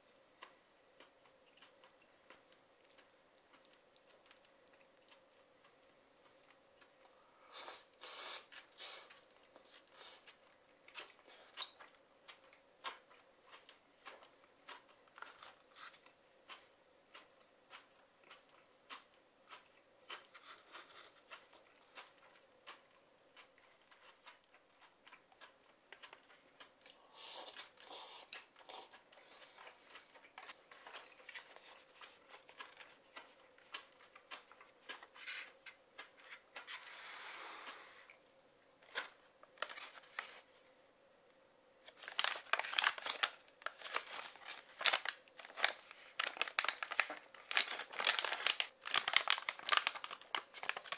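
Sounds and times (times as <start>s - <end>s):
chewing noodles: 0.4s - 38.2s.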